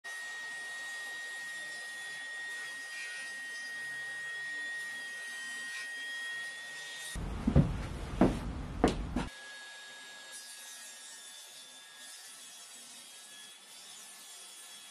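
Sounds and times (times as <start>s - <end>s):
table saw whining: 0.1s - 7.2s.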